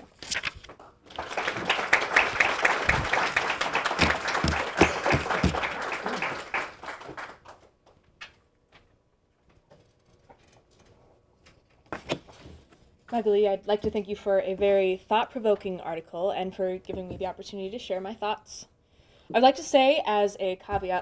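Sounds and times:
audience applause: 1.1 - 7.7.

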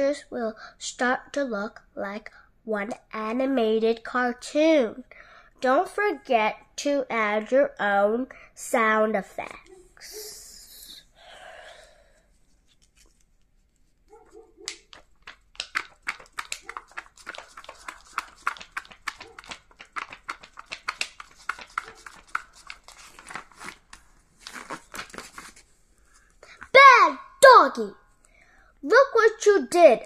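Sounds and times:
book page flapping: 12.5 - 25.8.

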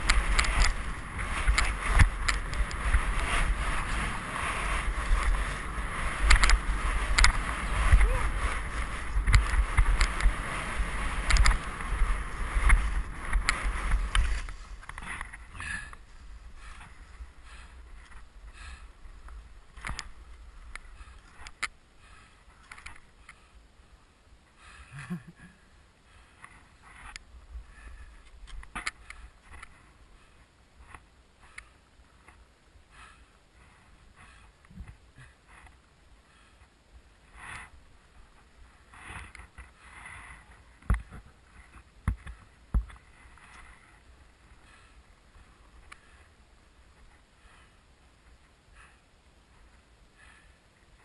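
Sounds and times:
wind rumble on microphone: 0.0 - 23.8.

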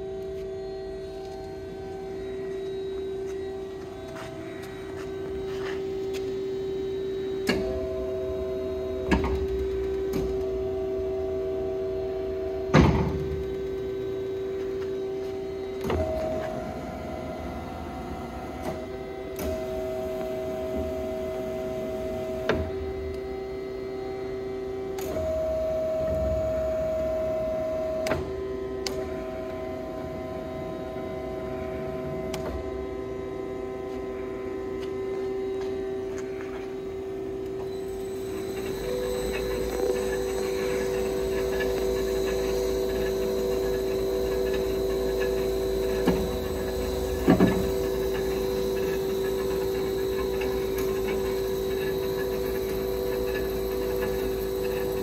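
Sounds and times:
bandsaw humming: 37.7 - 55.0
higher tone: 37.7 - 55.0.

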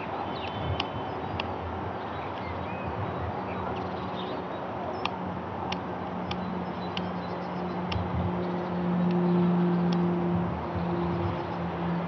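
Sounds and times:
small birds chirping: 0.0 - 10.0
propeller plane droning overhead: 0.0 - 12.0
sharp clicks: 5.0 - 7.1.

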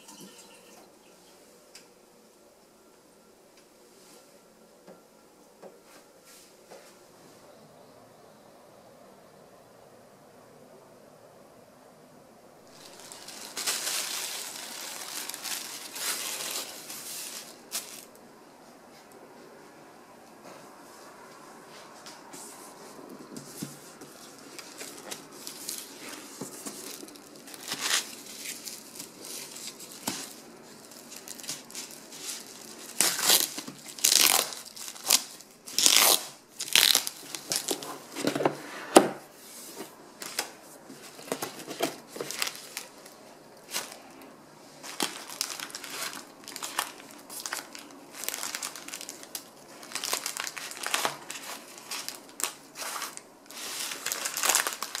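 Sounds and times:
plastic wrap crinkling: 12.6 - 18.2, 23.8 - 38.5, 39.8 - 55.0
wrapping paper rustling: 12.6 - 18.3, 23.5 - 38.4, 39.4 - 55.0
paper and cardboard rustling: 12.7 - 18.2, 22.4 - 44.2, 44.8 - 55.0
sharp ripping: 26.8 - 37.8, 44.9 - 55.0.

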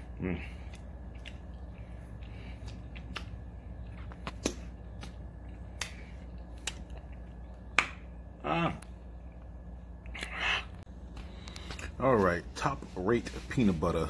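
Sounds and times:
mouth smacking and tongue clicks: 0.4 - 8.0.

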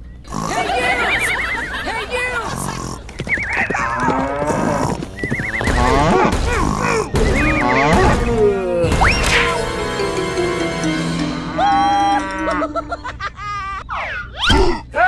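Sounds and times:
background music: 5.7 - 13.4.

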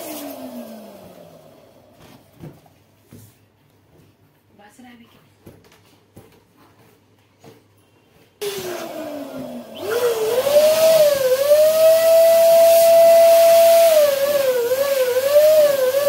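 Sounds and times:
electric balloon pump whining: 8.4 - 16.0.

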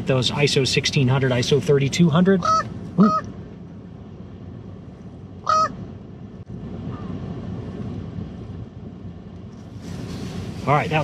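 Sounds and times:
low rumble: 0.7 - 11.0
raven cawing: 5.4 - 5.8.

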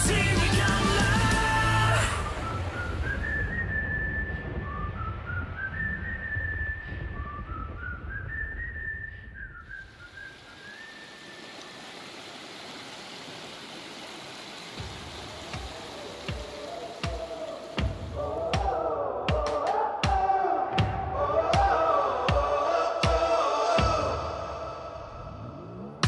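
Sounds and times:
whistle-like music melody: 2.0 - 11.0
stream rushing over rocks: 9.7 - 18.6.

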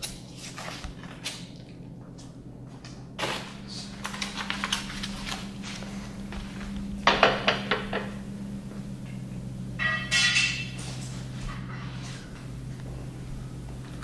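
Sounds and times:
ringing metal clink: 9.8 - 10.8.

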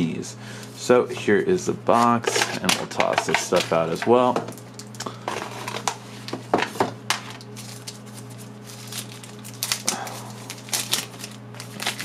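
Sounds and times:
low steady hum: 0.0 - 12.0
plastic wrapping crinkling: 7.2 - 12.0.

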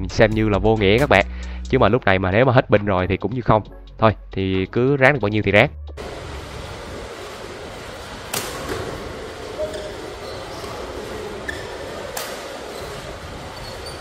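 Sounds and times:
hall background noise: 6.0 - 14.0
rackets striking shuttlecock: 8.3 - 10.0, 11.4 - 12.8
shoes squeaking on court: 8.5 - 14.0.

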